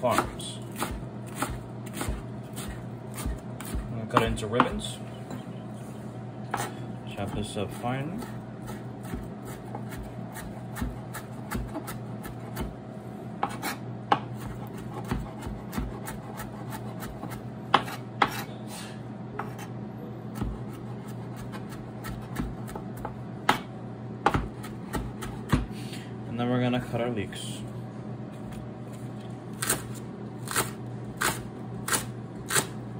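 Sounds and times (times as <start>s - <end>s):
knife chopping on cutting board: 0.0s - 4.9s, 6.5s - 12.8s, 13.4s - 18.5s, 19.4s - 19.7s, 20.3s - 25.8s, 29.6s - 32.8s.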